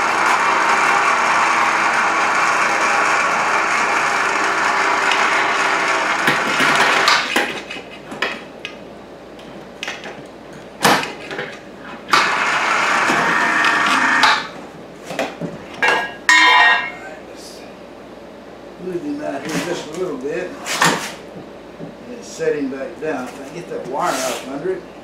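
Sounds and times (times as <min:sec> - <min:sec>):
electric hoist motor running: 0:00.0 - 0:07.4, 0:12.0 - 0:14.6.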